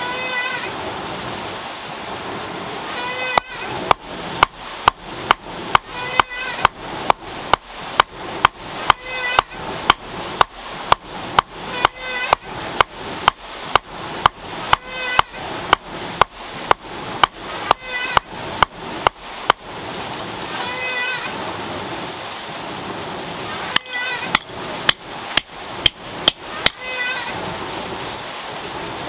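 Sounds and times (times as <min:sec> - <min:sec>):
hammer blows on hot iron: 0:03.2 - 0:19.6, 0:23.8 - 0:27.0.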